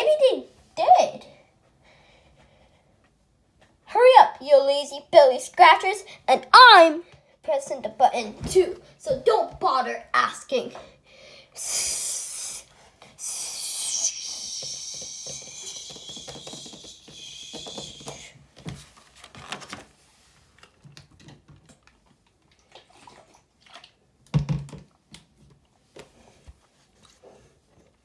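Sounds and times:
person hissing with mouth: 11.6 - 18.4
paper rustling: 18.6 - 20.0.

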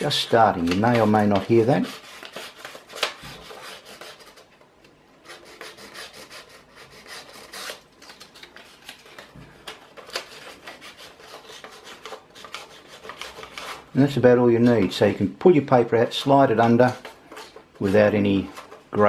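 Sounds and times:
paper scratching under printer nozzle: 0.0 - 4.5, 10.0 - 14.0.

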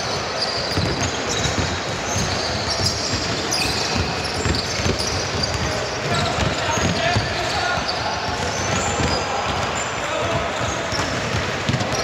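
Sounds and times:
sneakers squeaking: 0.0 - 12.0.

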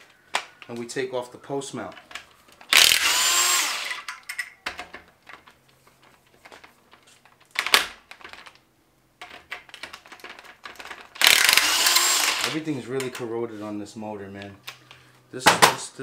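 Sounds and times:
cordless impact wrench: 2.7 - 4.2, 11.2 - 12.6.

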